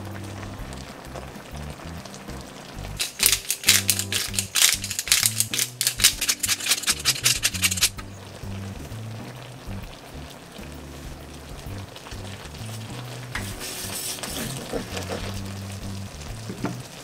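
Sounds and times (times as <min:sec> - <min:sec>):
background music: 0:00.0 - 0:17.0
pepper grinder crunching clicks: 0:03.0 - 0:08.0.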